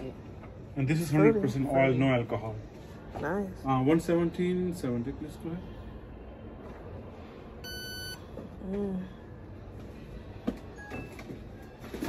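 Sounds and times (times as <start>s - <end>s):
card terminal electronic beep: 7.6s - 8.2s.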